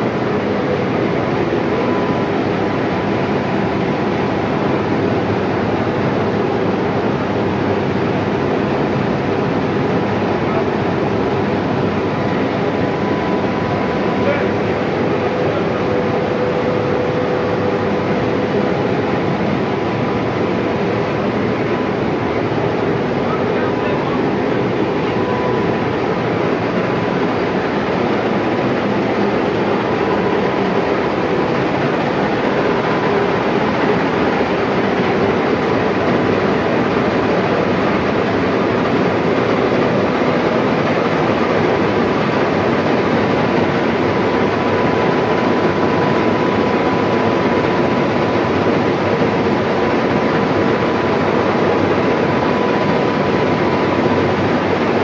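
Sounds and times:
thin steady whine: 0.0 - 55.0.

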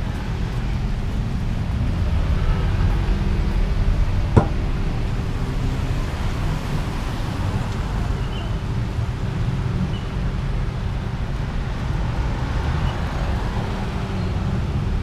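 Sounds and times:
street traffic rumble: 0.0 - 15.0
short sharp knock: 4.4 - 4.6.

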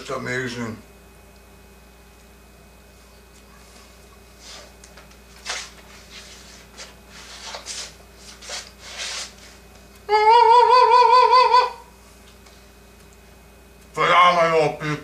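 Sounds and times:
man singing falsetto note: 10.1 - 11.9.

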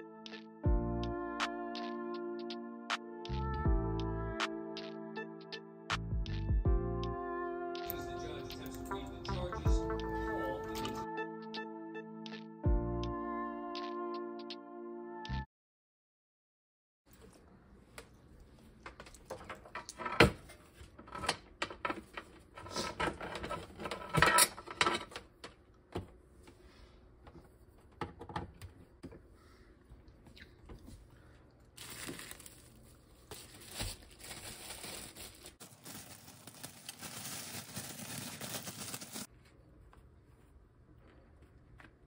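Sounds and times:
plastic bag crinkling: 31.8 - 39.3.

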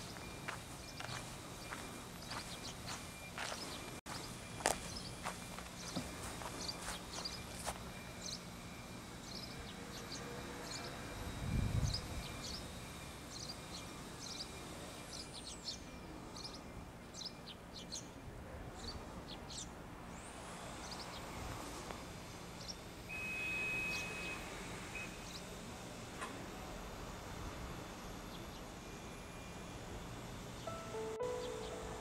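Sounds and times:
small birds chirping: 0.0 - 10.9, 11.8 - 18.2
outdoor background noise: 0.0 - 32.0
steady high tone: 30.7 - 32.0.

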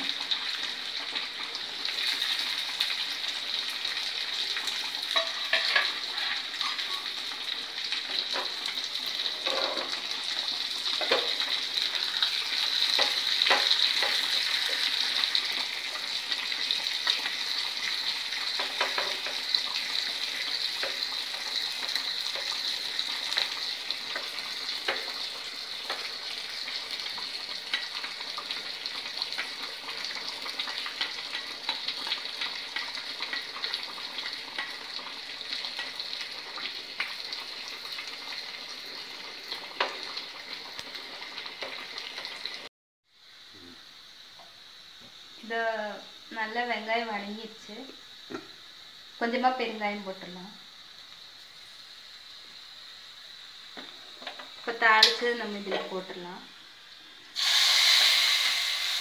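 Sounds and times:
food sizzling in hot oil: 0.0 - 59.0
metal ladle knocking pan: 5.1 - 6.0.

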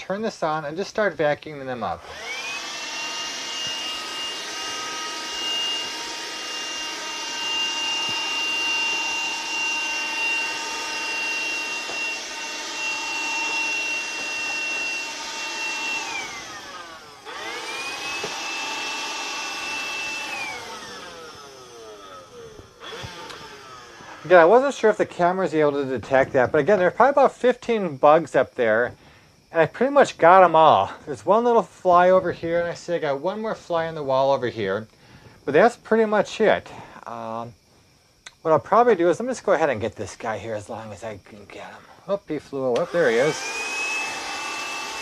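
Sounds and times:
handheld vacuum cleaner whining: 1.7 - 27.3, 41.5 - 45.0.

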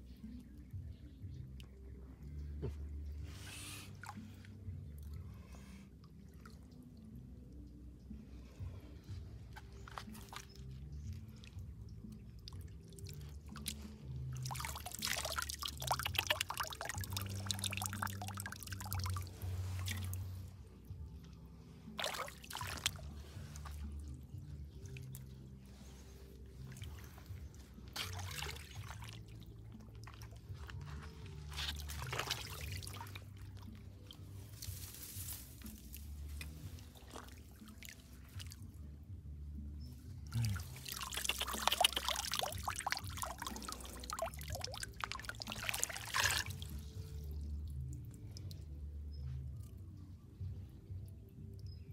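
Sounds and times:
hands splashing in pond water: 9.4 - 39.0, 40.0 - 49.8
water pouring and dripping: 9.6 - 20.5, 21.9 - 38.6, 40.3 - 48.6.

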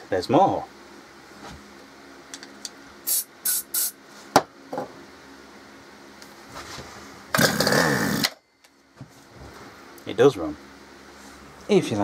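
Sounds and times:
spray can hissing: 3.0 - 4.0
recoil starter cord whirring: 7.3 - 8.4.

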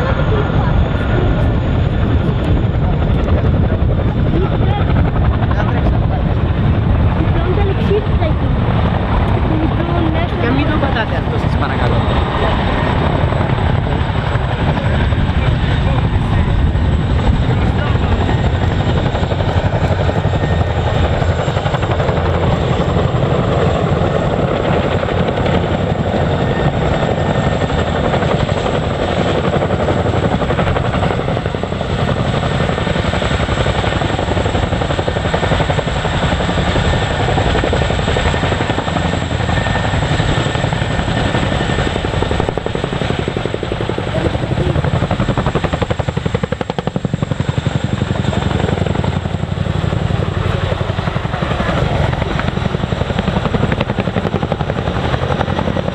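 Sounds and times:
helicopter rotors beating: 0.0 - 55.9
high helicopter whine: 0.0 - 55.9.

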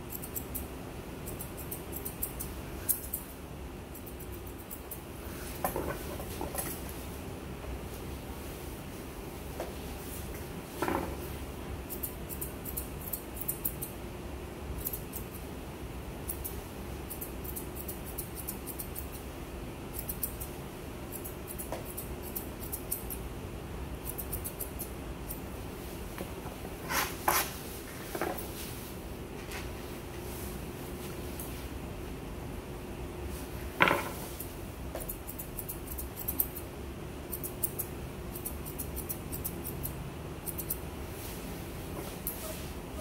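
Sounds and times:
steady low hum: 0.0 - 43.0
scissors snipping fur: 0.1 - 5.1, 11.8 - 14.0, 14.8 - 15.5, 16.2 - 19.3, 19.9 - 23.2, 24.0 - 25.4, 34.4 - 36.7, 37.3 - 40.8.

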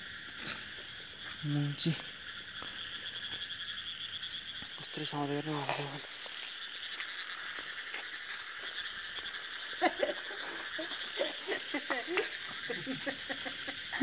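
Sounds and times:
frogs croaking: 0.0 - 14.0
high-pitched insect chorus: 0.0 - 14.0.

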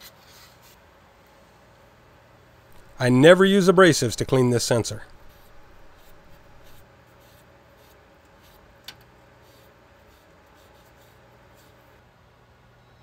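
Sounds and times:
cloth rubbing metal rod: 5.1 - 6.8.

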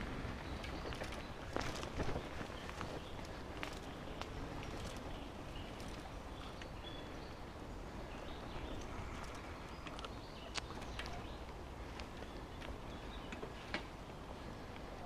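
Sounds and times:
bicycle clicks and rattles: 0.0 - 7.2, 8.4 - 14.1
bicycle tyres rumbling: 0.0 - 15.0.

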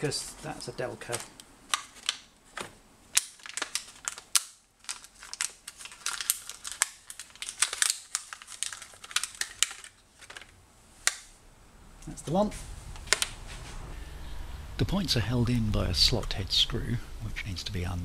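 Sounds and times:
plastic packets crinkling: 0.4 - 11.3.

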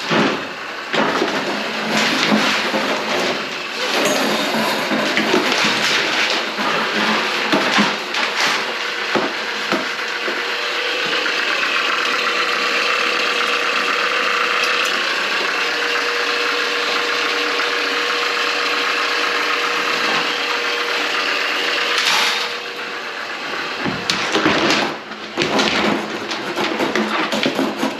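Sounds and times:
knocks and clatter: 0.0 - 10.4, 23.5 - 27.9
drain cleaning machine motor rattling: 0.0 - 27.9.

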